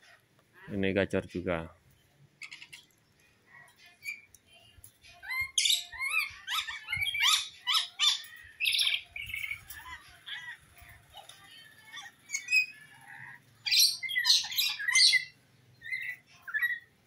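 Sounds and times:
lorikeet screeching chatter: 2.4 - 2.9, 5.2 - 16.9.

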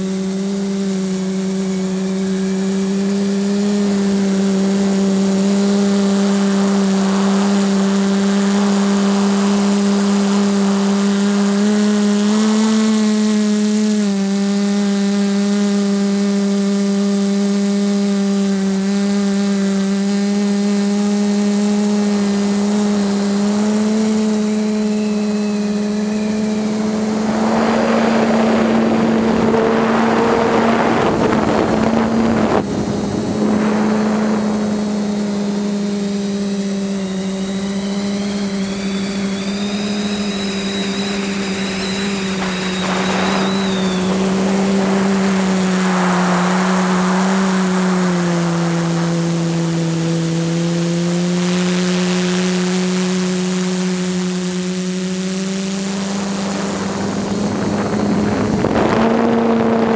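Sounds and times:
drone motors and propellers humming: 0.0 - 59.9
wind noise: 24.5 - 51.0, 55.2 - 59.9.

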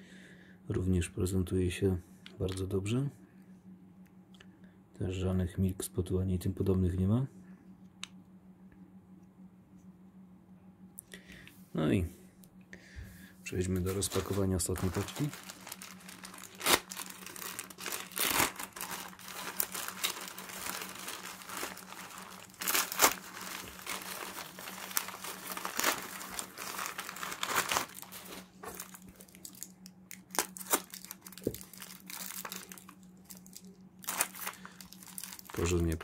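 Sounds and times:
packaging crinkling: 13.8 - 36.0
packaging tearing: 13.9 - 36.0.

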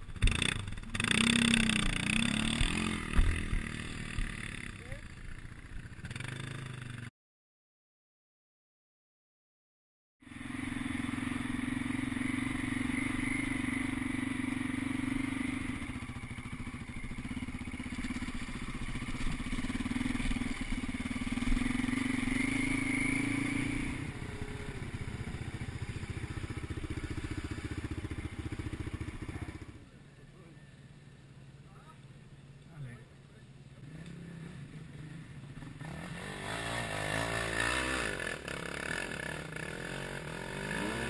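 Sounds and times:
motorcycle engine running: 0.0 - 7.1, 10.2 - 30.0.

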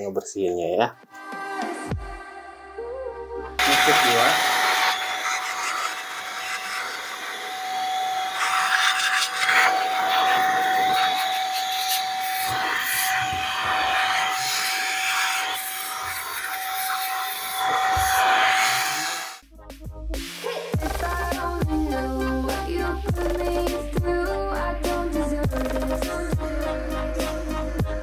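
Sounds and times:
electric air duster motor whine: 3.6 - 19.4.

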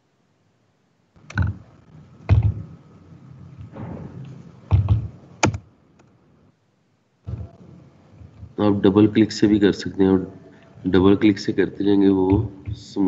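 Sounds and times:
keyboard and mouse clicks: 1.2 - 1.6, 3.6 - 6.1.

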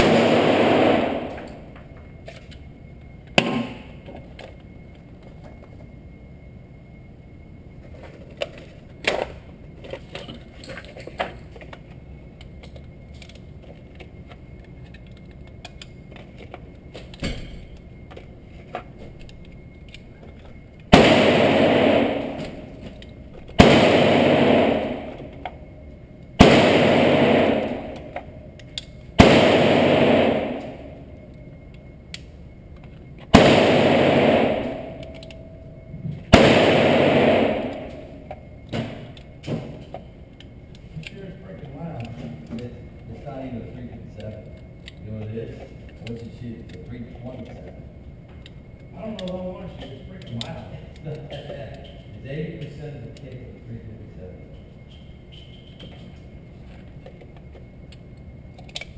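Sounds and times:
pistol shots echoing: 0.0 - 1.7, 20.9 - 23.0, 23.6 - 25.6, 26.4 - 28.3, 29.2 - 31.1, 33.3 - 35.4, 36.3 - 39.2.

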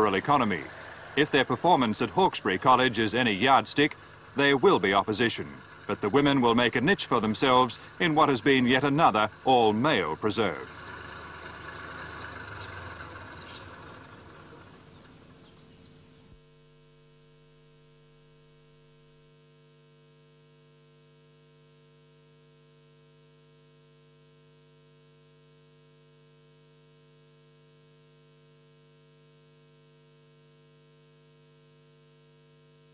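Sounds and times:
faint electrical hum: 0.0 - 10.7.

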